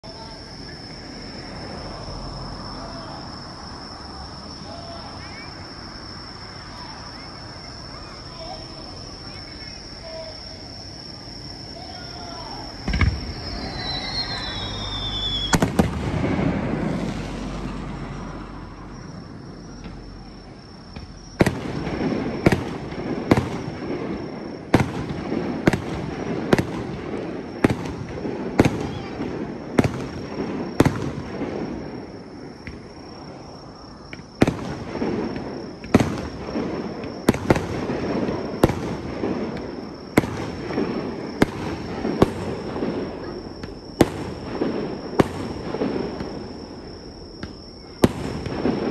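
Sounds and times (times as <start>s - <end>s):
sharp firework bursts: 6.3s - 48.9s
fireworks bangs: 6.4s - 48.9s
falling whistle: 11.8s - 15.8s.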